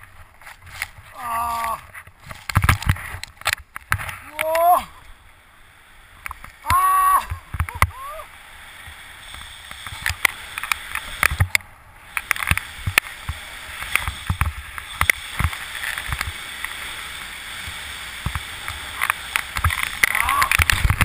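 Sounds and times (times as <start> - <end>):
sharp clicks and knocks: 2.0 - 4.2, 9.3 - 16.8
skis scraping over snow: 8.6 - 21.0.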